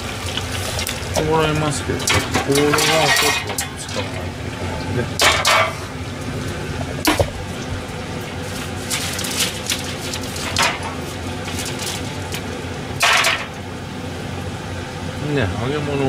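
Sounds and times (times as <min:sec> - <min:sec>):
steady low hum: 0:00.0 - 0:16.0
metal rack and tray clattering: 0:01.5 - 0:04.3, 0:05.2 - 0:05.9, 0:08.9 - 0:12.1, 0:13.0 - 0:13.5.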